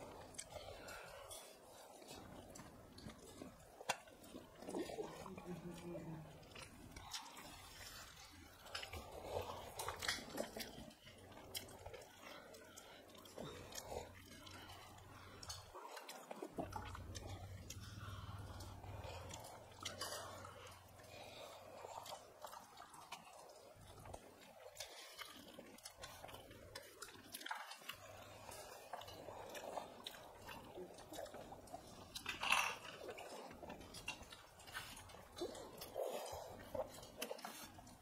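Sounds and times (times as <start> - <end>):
people chewing and lip smacking: 0.0 - 38.0.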